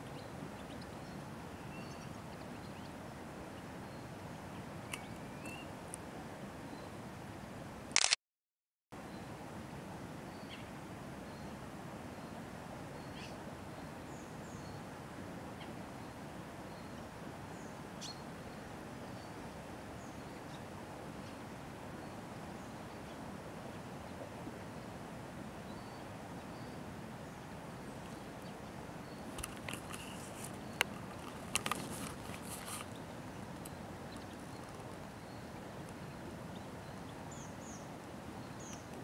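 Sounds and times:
sharp clicks: 8.0s - 8.2s.

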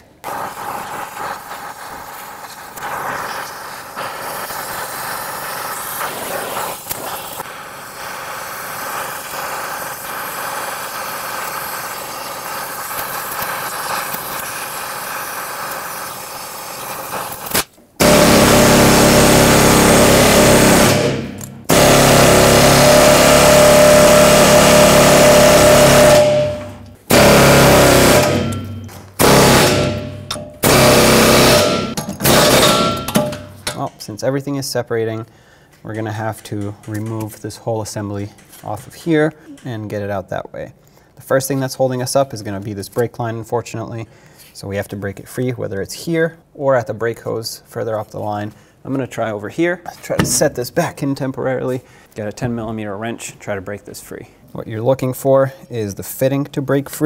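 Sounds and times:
torch flame hissing: 0.0s - 28.3s
pneumatic air hammer bursts: 0.0s - 33.8s, 50.2s - 50.6s.

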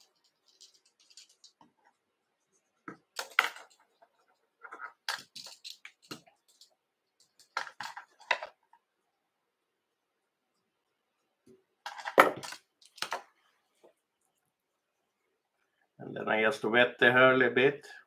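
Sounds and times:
hands handling thread and tools: 0.0s - 8.9s, 11.4s - 14.5s.

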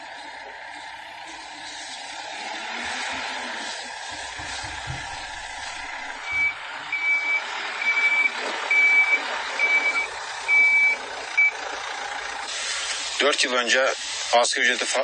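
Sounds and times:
machine working noise: 0.0s - 15.0s
reversing alarm beeping: 4.5s - 11.6s.

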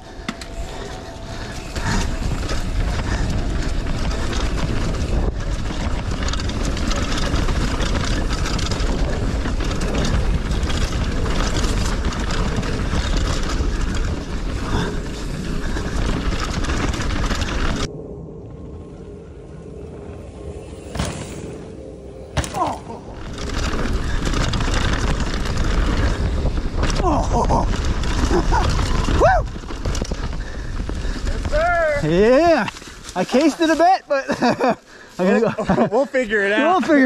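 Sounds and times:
bike knocks and rattles: 0.0s - 17.9s, 22.4s - 33.7s
bike tyre noise on dirt: 0.0s - 37.0s.

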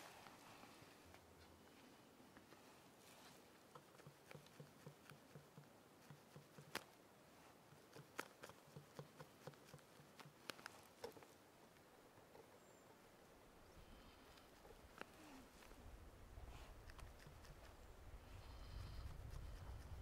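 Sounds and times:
brush dabbing paint: 3.2s - 6.9s, 7.6s - 11.2s.

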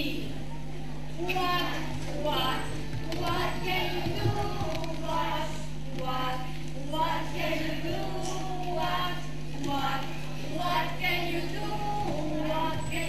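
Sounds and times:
steady low hum: 0.0s - 13.0s
woman singing: 1.2s - 13.0s
children singing together: 2.3s - 5.7s, 6.3s - 13.0s.

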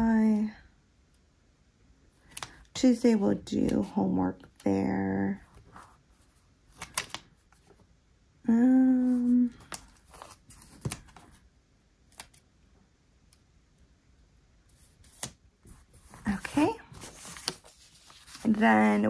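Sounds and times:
paper rustling: 5.5s - 7.8s, 9.1s - 11.4s, 14.7s - 19.0s
person humming: 8.4s - 9.6s.

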